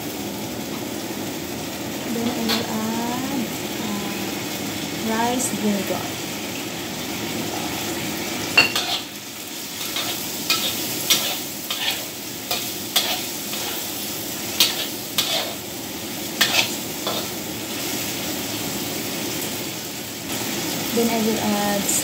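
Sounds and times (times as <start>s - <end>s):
food sizzling in a wok: 0.0s - 22.0s
metal spatula scraping a wok: 8.7s - 15.7s, 16.4s - 17.4s.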